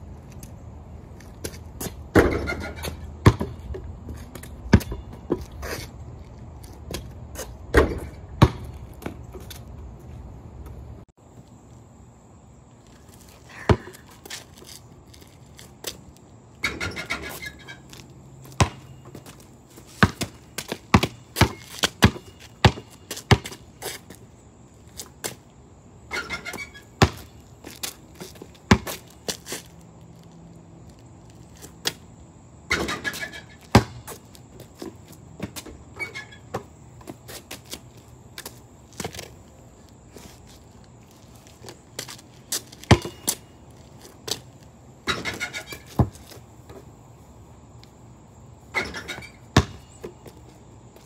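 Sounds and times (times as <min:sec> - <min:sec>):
rough scuffing noises: 0:00.2 - 0:07.7, 0:08.6 - 0:11.7, 0:12.7 - 0:16.5, 0:17.2 - 0:25.5, 0:26.4 - 0:32.1, 0:33.2 - 0:44.8, 0:45.5 - 0:48.0
basketball bouncing on concrete: 0:01.4 - 0:05.6, 0:06.9 - 0:09.5, 0:13.5 - 0:14.7, 0:18.4 - 0:23.7, 0:26.1 - 0:29.1, 0:32.7 - 0:34.2, 0:35.3 - 0:37.2, 0:42.0 - 0:43.4, 0:45.1 - 0:46.4, 0:48.8 - 0:50.3.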